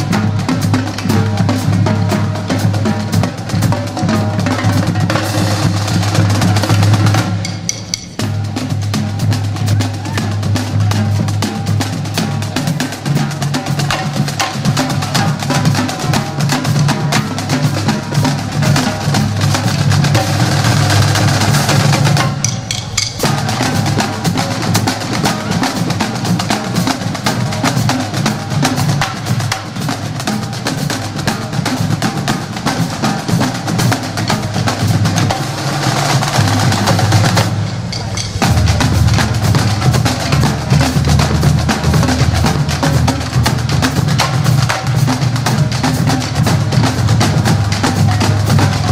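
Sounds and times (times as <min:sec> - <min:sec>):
snare and bass drums: 0:00.0 - 0:48.9
parade music: 0:17.8 - 0:27.2, 0:36.3 - 0:43.2.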